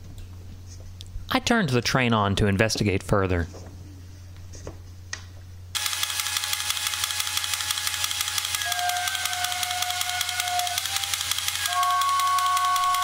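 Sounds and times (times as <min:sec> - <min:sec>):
toy train motor rattling: 0:05.8 - 0:13.0
toy train whistle: 0:07.8 - 0:13.0.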